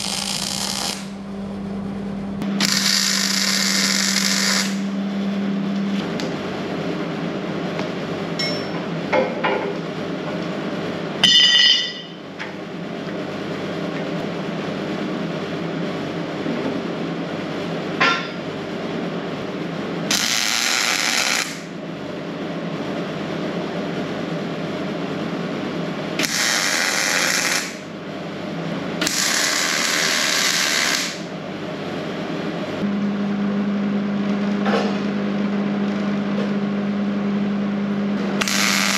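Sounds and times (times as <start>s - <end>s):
mig welder crackling: 0.0s - 1.3s, 2.4s - 4.9s, 20.1s - 21.7s, 26.2s - 27.9s, 29.0s - 31.3s, 38.4s - 38.9s
ringing metal clank: 8.4s - 8.8s, 11.2s - 12.2s.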